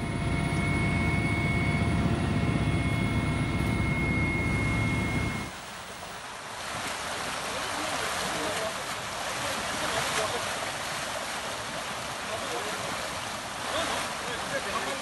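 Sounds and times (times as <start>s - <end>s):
helicopter engine and rotor drone: 0.0s - 6.1s.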